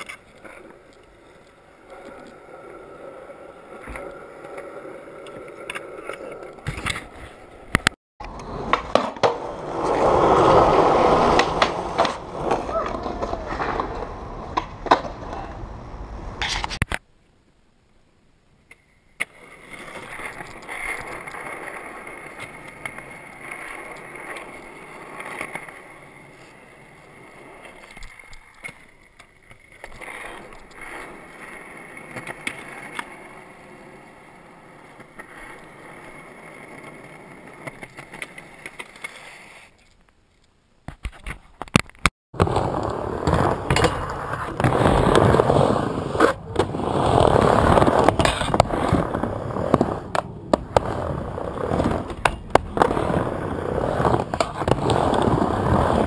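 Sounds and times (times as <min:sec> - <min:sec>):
skateboard rolling on wooden ramp: 0:00.0 - 0:16.8, 0:19.3 - 0:39.7, 0:42.4 - 0:56.0
skateboard clacks: 0:00.0 - 0:17.0, 0:40.9 - 0:56.0
skateboard rolling on concrete: 0:00.0 - 0:17.1, 0:18.5 - 0:56.0.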